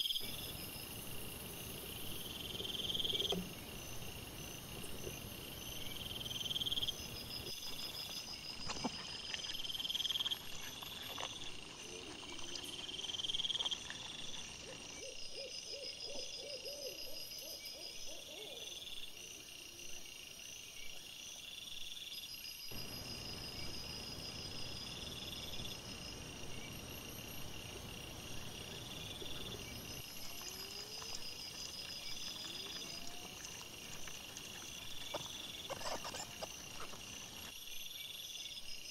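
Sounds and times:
low pulsing insect calls: 0.0s - 38.9s
night insects chirping: 0.0s - 38.9s
faint rustles and clicks: 29.9s - 37.5s.

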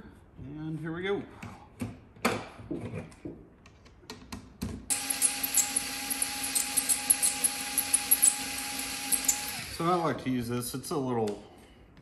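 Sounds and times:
cordless driver whining: 4.9s - 10.2s.

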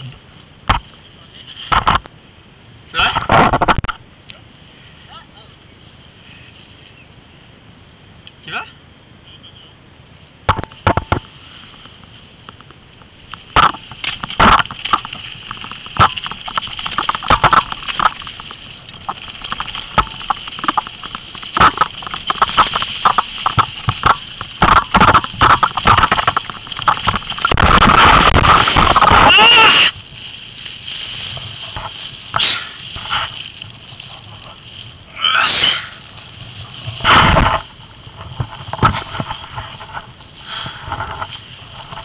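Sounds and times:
mountain bike rattling: 10.5s - 42.0s.

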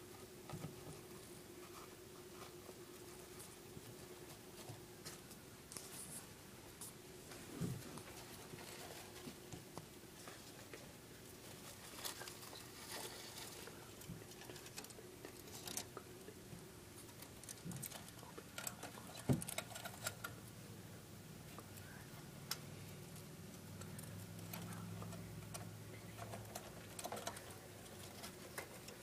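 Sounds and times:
faint steady hum: 0.0s - 29.0s
hamsters rustling in bedding: 0.7s - 9.6s, 10.2s - 15.9s.

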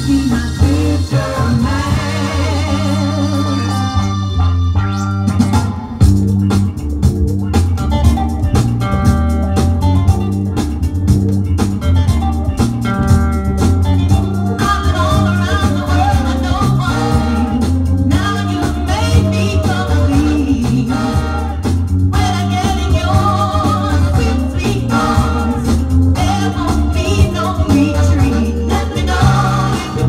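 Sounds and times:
person singing: 0.0s - 4.3s, 14.4s - 21.6s, 22.2s - 30.0s
song with bass guitar and drums: 0.0s - 30.0s.

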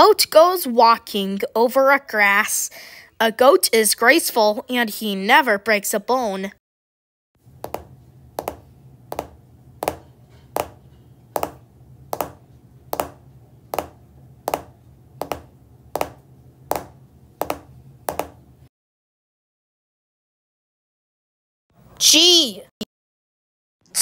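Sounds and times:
low steady hum: 7.4s - 18.7s
sharp taps: 7.6s - 10.8s, 11.4s - 18.4s.

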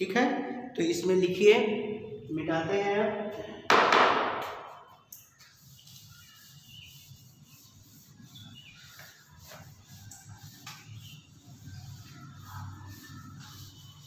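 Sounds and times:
duster swishing on blackboard: 4.4s - 14.0s.

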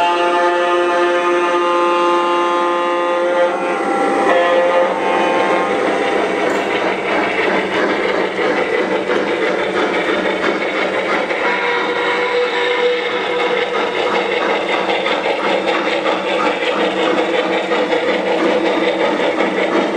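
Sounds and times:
model train horn chord: 0.0s - 5.9s, 11.4s - 13.0s
model train wheels clattering: 4.2s - 19.9s.

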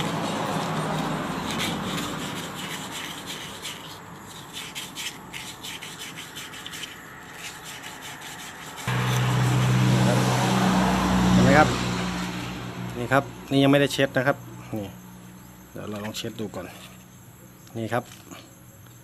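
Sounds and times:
sandpaper rubbing on metal shaft: 0.0s - 10.4s.

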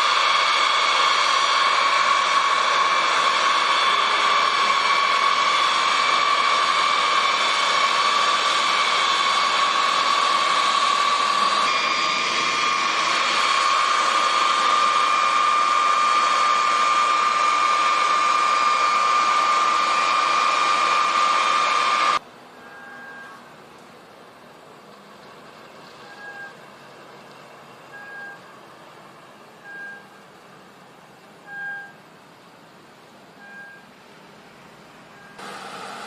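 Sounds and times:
rushing hiss: 0.0s - 22.2s
jet engines whining: 0.0s - 36.0s.

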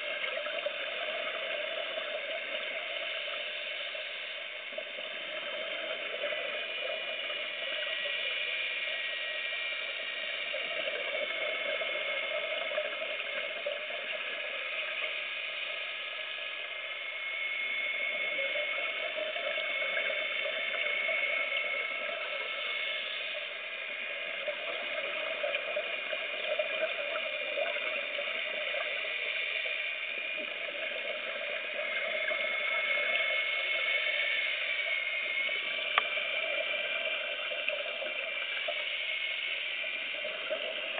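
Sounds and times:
faint high whining tones: 0.0s - 40.9s
underwater hiss and bubbling: 0.0s - 40.9s.

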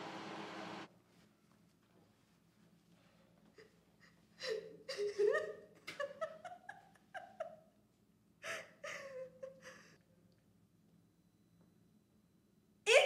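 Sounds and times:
woman whimpering and sobbing: 3.6s - 5.6s, 8.4s - 10.0s.

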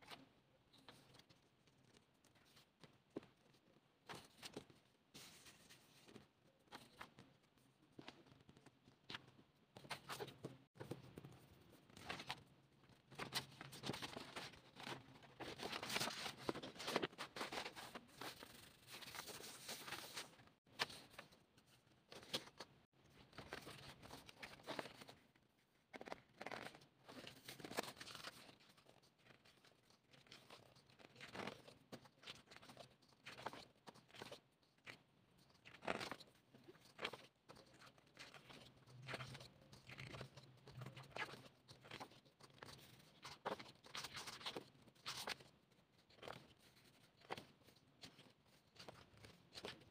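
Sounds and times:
pages rustling and crinkling: 11.9s - 12.5s, 13.1s - 21.3s, 22.1s - 25.2s, 26.0s - 35.0s, 35.7s - 49.9s.

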